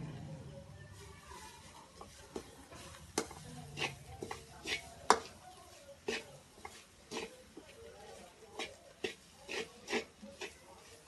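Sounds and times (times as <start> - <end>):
oil sizzling: 0.6 - 11.0
metal spoon scraping metal pan: 2.0 - 5.4, 6.0 - 7.6, 8.5 - 11.0.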